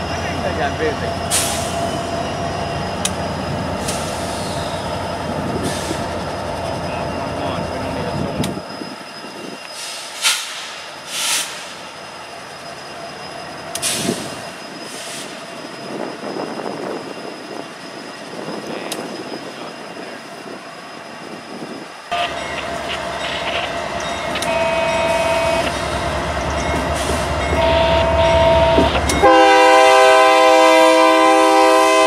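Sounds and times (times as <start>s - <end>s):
short air hisses: 9.8s - 11.8s
diesel locomotives idling: 21.5s - 32.0s
steady horn-like tone: 24.4s - 25.7s, 27.6s - 32.0s.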